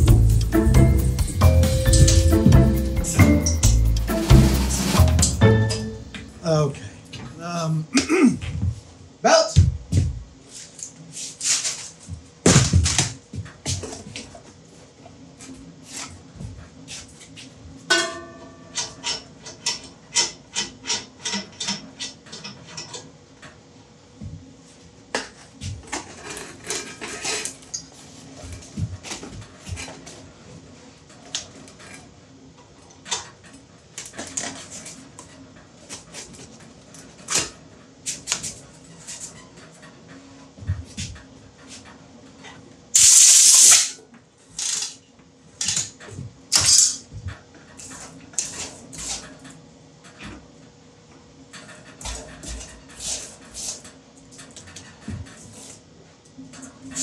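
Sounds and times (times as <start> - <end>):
compressed air blast: 43.0 - 43.9.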